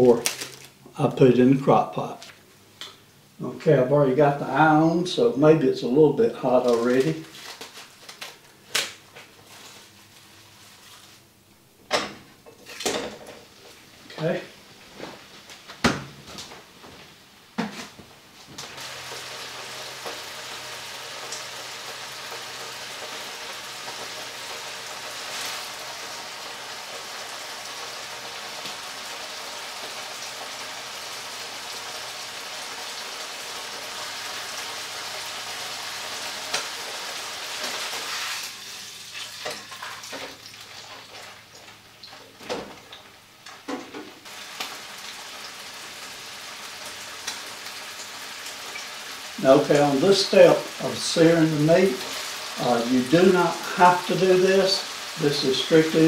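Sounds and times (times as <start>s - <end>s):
meat sizzling in oil: 18.7s - 42.2s, 44.2s - 56.0s.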